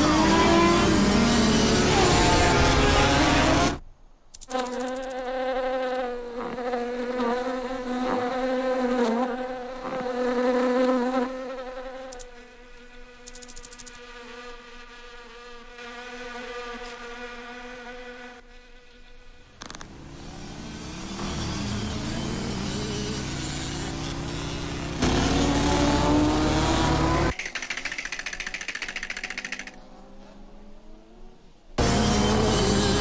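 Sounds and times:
fly buzzing: 0.0 - 20.0, 21.1 - 30.3
loud rushing noise: 1.6 - 3.8.

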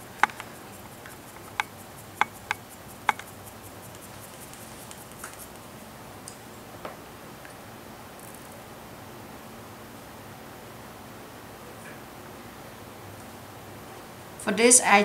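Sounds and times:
faint ticks of paper coil: 0.0 - 5.7
paper strip clicking on quilling pen: 0.2 - 3.3.

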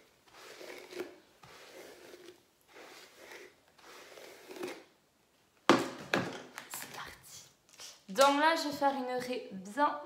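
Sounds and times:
hairbrush brushing through hair: 0.0 - 4.8.

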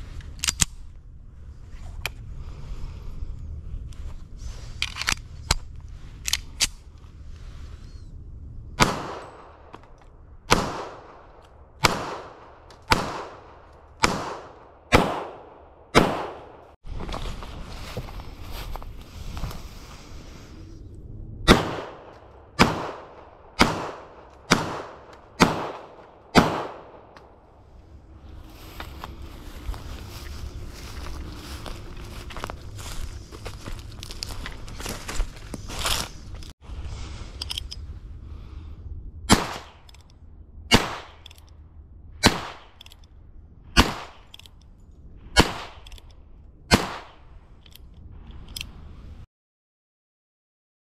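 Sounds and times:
pistol shots with echo: 8.8 - 9.7, 10.5 - 11.2, 11.8 - 16.6, 21.5 - 27.2, 39.3 - 39.8, 40.7 - 41.2, 42.2 - 42.8, 43.8 - 44.3, 45.4 - 45.8, 46.7 - 47.2.

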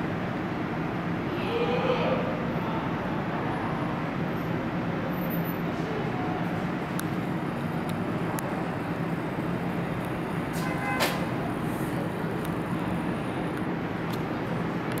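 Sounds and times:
station rumble and hum: 0.0 - 15.0
subway train departing: 0.0 - 15.0.

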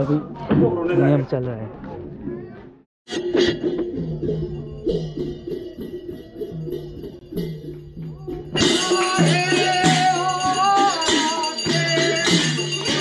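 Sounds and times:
drum beating steady rhythm: 3.1 - 13.0
jingling cymbals: 4.0 - 13.0.

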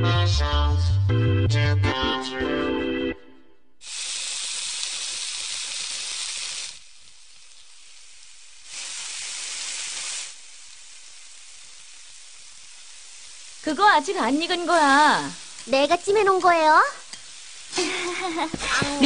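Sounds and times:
meat sizzling on a grill plate: 3.8 - 19.0.

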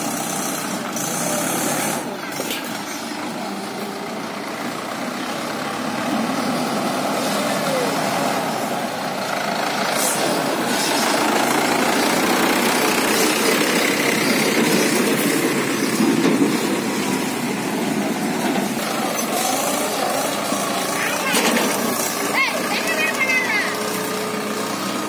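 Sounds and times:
tractor diesel engine driving by: 0.0 - 25.0
trolley body rattling: 9.3 - 25.0.

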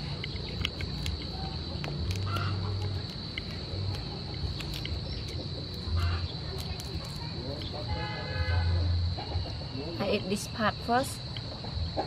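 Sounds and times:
prawn shell cracking: 0.0 - 7.9
insect drone: 0.0 - 12.0.

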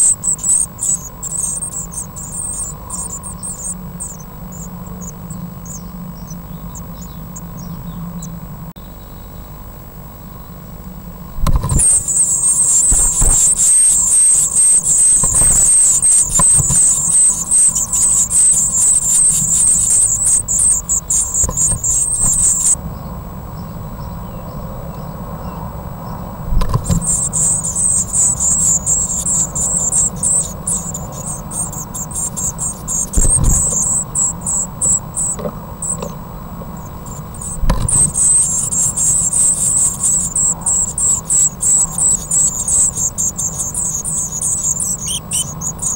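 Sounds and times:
nestlings begging calls: 0.0 - 9.5, 11.4 - 45.9
birds knocking in nest box: 11.4 - 22.8, 26.5 - 36.2, 37.3 - 42.5.

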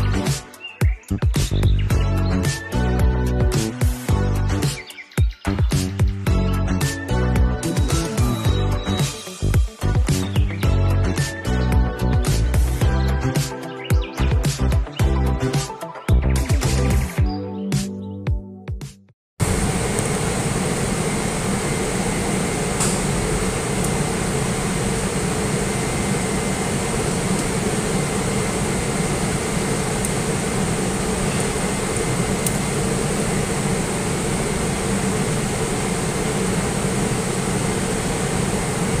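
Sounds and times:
mechanical hum with hiss: 19.4 - 39.0.

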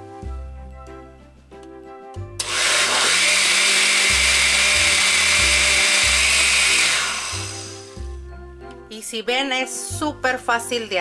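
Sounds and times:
blender running: 2.4 - 8.0.

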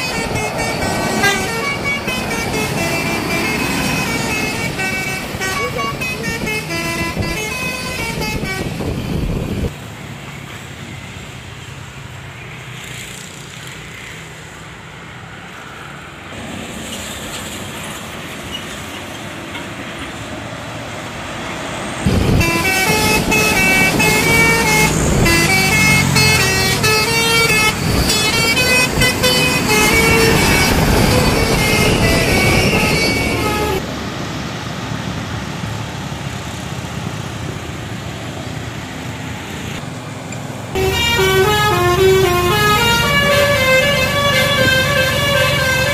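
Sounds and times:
bus air horns playing melody: 0.0 - 9.7, 22.1 - 33.8, 40.8 - 45.9
road noise: 0.0 - 45.9.

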